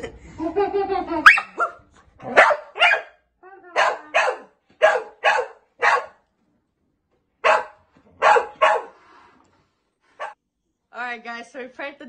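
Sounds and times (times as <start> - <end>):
large dog barking: 1.2 - 3.2, 3.8 - 6.2, 7.4 - 9.0.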